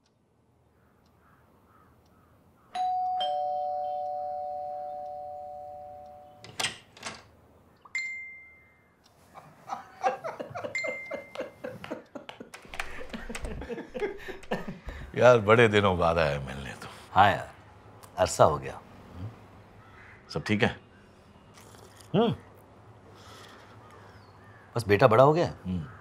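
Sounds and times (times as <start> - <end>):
two-tone doorbell chime: 2.8 - 6.5, 8.0 - 8.9, 10.7 - 11.6.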